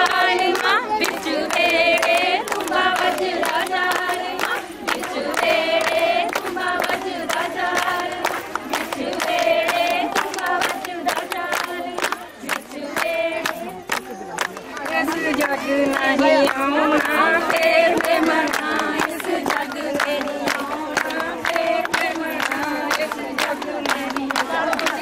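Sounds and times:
women singing folk song: 0.0s - 14.0s, 14.8s - 25.0s
hand claps: 0.0s - 25.0s.

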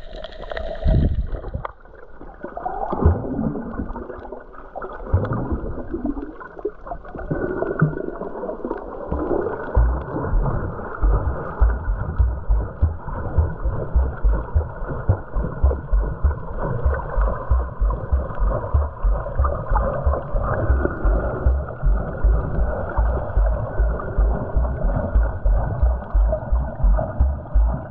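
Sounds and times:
muffled underwater wash: 0.0s - 27.9s
regular low thumping: 9.1s - 27.9s.

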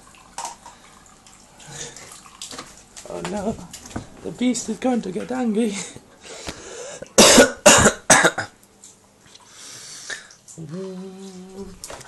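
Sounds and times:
person coughing: 7.2s - 8.6s
person humming a held note: 10.6s - 11.8s.

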